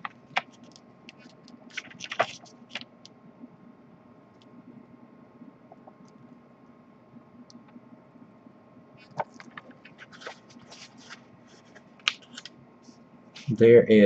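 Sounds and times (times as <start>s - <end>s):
paper pages rustling: 0.0s - 2.9s, 9.0s - 12.5s
faint room hum: 0.0s - 14.0s.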